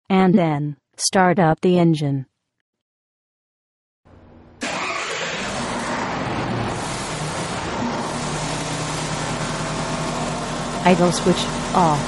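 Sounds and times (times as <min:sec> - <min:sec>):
engine idling: 0:04.6 - 0:12.0.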